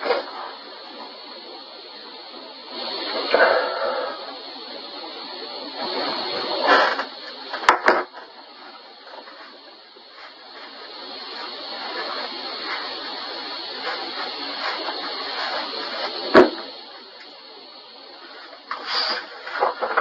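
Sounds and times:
steady hiss: 0.0s - 20.0s.

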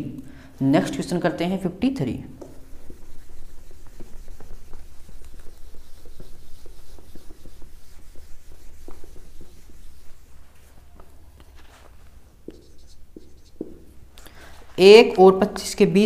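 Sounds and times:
whiteboard being wiped: 2.4s - 14.8s.

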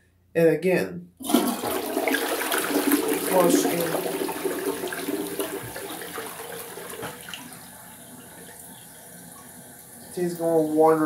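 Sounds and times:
toilet flushing: 1.2s - 11.0s.

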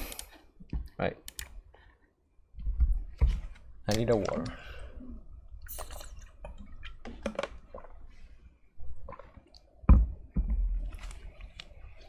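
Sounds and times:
small clicks: 1.2s - 1.6s.

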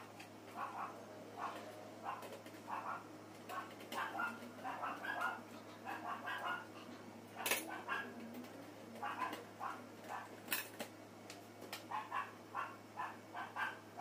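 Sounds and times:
steady low hum: 0.0s - 14.0s
dog barking: 0.6s - 8.1s, 9.0s - 10.3s, 11.9s - 14.0s.

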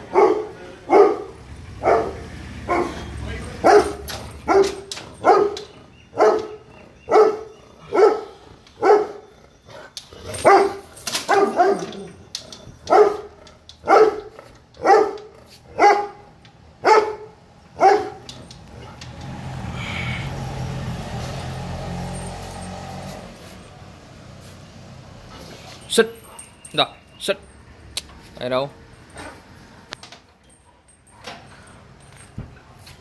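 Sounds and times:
dog barking: 0.0s - 9.3s, 10.3s - 12.1s, 12.9s - 19.0s.

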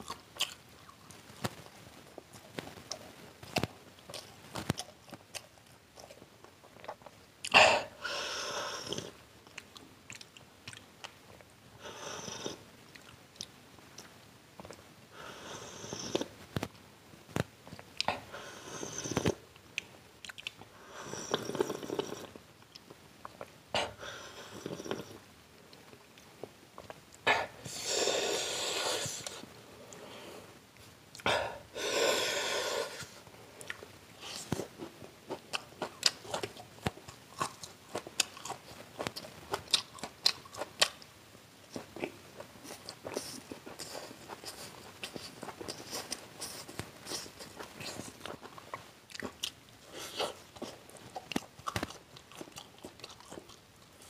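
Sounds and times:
crunching and chewing: 0.0s - 7.6s, 8.9s - 11.5s, 19.0s - 20.7s, 33.5s - 41.1s, 41.7s - 54.0s.

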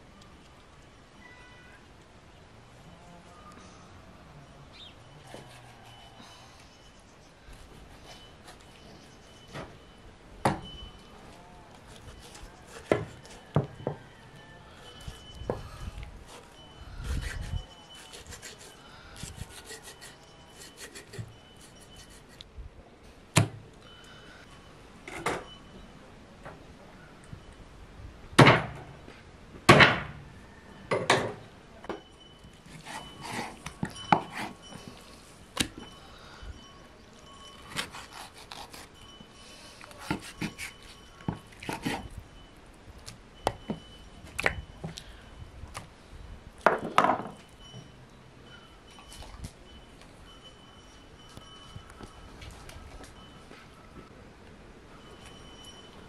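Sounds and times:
knife scraping: 11.7s - 13.4s, 16.2s - 22.5s, 32.6s - 34.8s, 37.6s - 39.2s, 39.8s - 42.1s.

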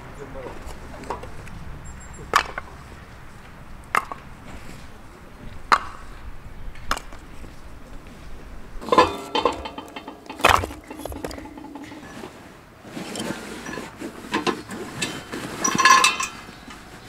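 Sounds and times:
axe chopping firewood: 8.8s - 12.1s
wood blocks knocking together: 8.9s - 12.1s.

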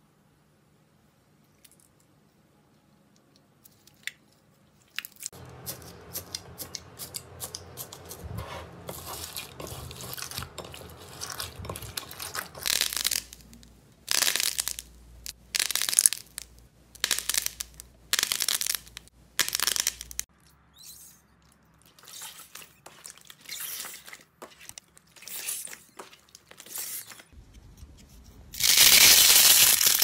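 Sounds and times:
slime crackling and popping: 11.1s - 20.3s.

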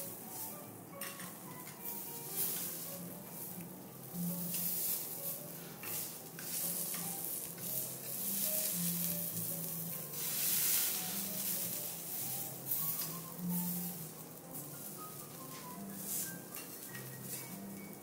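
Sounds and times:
vegetables sizzling on a griddle: 0.0s - 18.0s
knife and spatula scraping steel: 4.3s - 14.0s, 14.8s - 17.6s.

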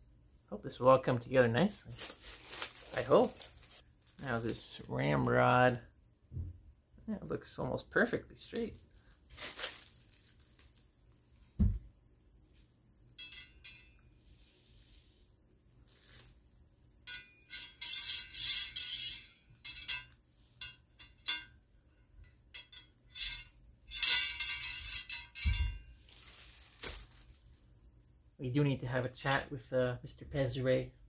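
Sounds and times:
dull knock: 11.6s - 11.9s
metal rod clinking: 13.2s - 14.1s, 17.0s - 21.6s, 22.2s - 25.9s.

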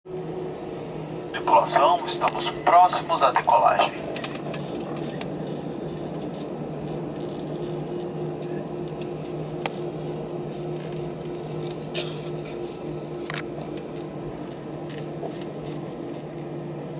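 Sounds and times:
jet engines idling drone: 0.1s - 16.9s
higher hum: 0.4s - 7.2s.

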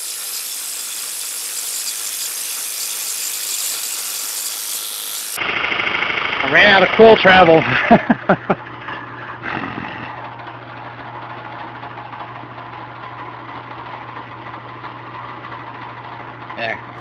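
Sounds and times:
drill bit scraping wood: 0.0s - 5.4s
drill press cutting wood: 0.0s - 6.2s.

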